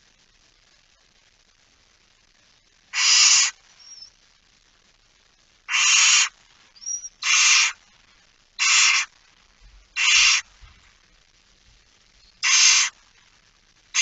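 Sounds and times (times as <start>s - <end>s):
owls hissing: 2.9s - 4.1s, 5.7s - 7.8s, 8.6s - 9.1s, 10.0s - 10.5s, 12.3s - 13.0s.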